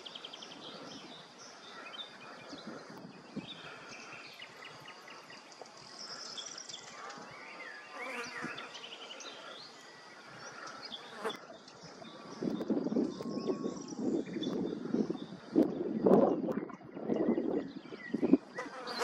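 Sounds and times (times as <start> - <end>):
insects buzzing: 0.0 - 12.0, 18.2 - 19.0
faint high insect tone: 0.0 - 19.0
small birds chirping: 0.0 - 19.0.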